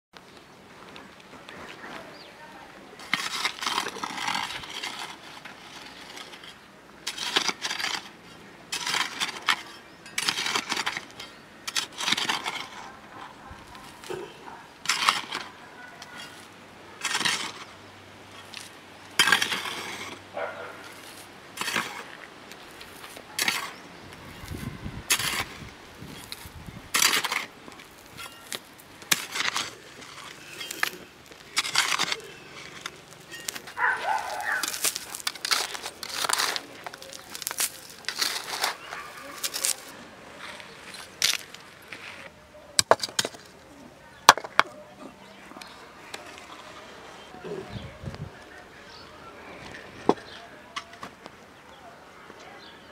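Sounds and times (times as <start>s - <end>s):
hoe chopping stony soil: 3.0s - 12.9s, 13.8s - 15.6s, 17.0s - 17.7s, 18.4s - 22.2s, 22.8s - 23.8s, 24.4s - 39.9s, 42.8s - 43.5s
pebbles and grit rattling: 3.0s - 14.1s, 18.4s - 39.9s.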